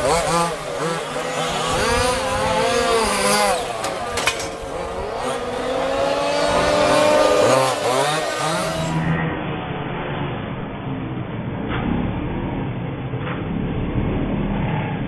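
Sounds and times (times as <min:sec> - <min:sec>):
small two-stroke engines revving: 0:00.0 - 0:09.2.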